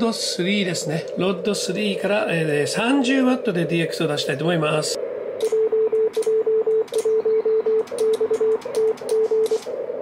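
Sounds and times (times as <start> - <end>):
soft clicks: 5.4 - 7.2, 7.8 - 9.7
morse code tone: 5.5 - 9.7.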